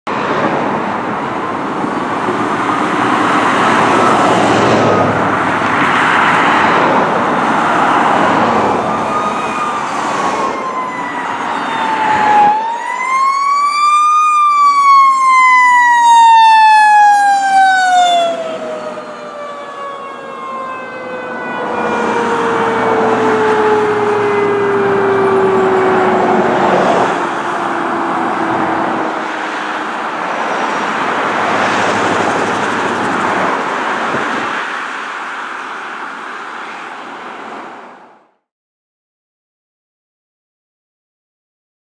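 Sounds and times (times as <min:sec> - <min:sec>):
truck engine and road noise: 0:00.1 - 0:38.4
mechanical siren wailing: 0:08.6 - 0:29.1.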